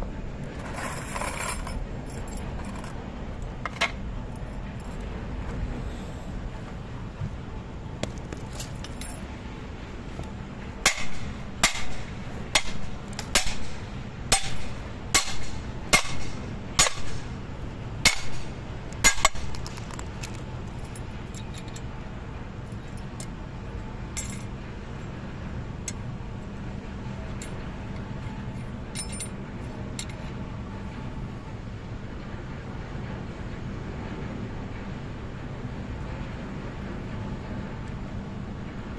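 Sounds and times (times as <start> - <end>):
light clinks of steel clips: 8.0 - 9.3, 18.0 - 21.9, 22.6 - 23.4, 24.1 - 24.6, 25.8 - 26.1, 27.2 - 30.4
hammer striking steel chain: 10.8 - 17.3, 18.0 - 19.6, 28.9 - 29.4.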